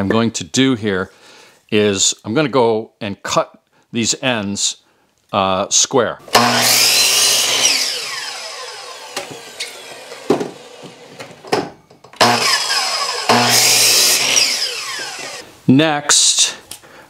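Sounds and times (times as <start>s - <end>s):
miter saw cutting wood: 6.3s - 11.4s, 12.2s - 15.4s
saw blade spinning down: 6.3s - 11.4s, 12.2s - 15.4s.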